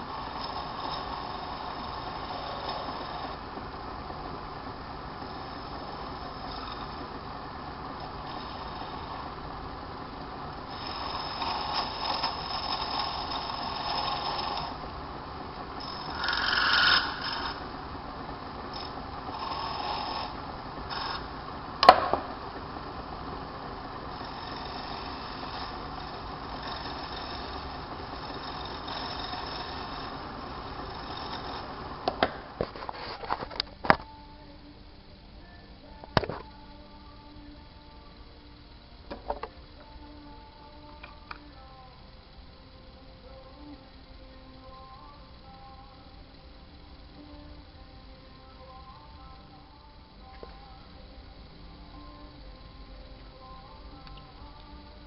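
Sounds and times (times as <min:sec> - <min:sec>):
cutting tool scraping hiss: 0:00.0 - 0:03.7, 0:04.4 - 0:33.6
small lathe running: 0:00.0 - 0:33.2.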